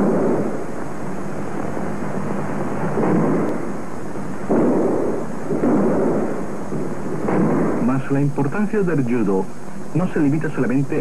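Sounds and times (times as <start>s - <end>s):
film soundtrack hiss and rumble: 0.0s - 11.0s.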